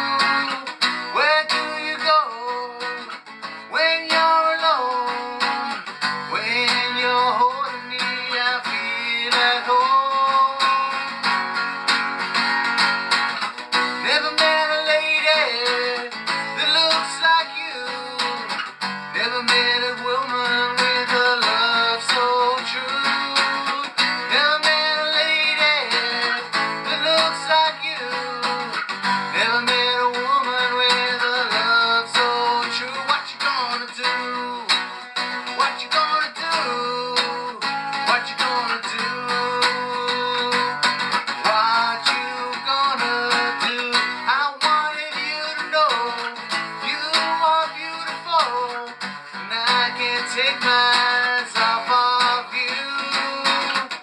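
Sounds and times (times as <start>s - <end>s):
man singing slow melody: 0.0s - 11.5s, 13.7s - 54.0s
strummed acoustic guitar: 0.0s - 54.0s.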